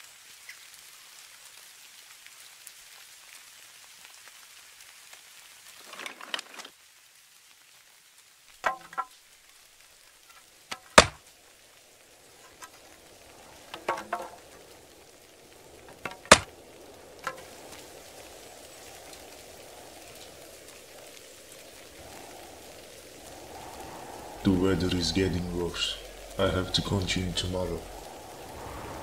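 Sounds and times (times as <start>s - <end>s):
storm hiss: 7.4s - 29.0s
axe chopping wood: 10.7s - 11.2s, 16.2s - 16.5s.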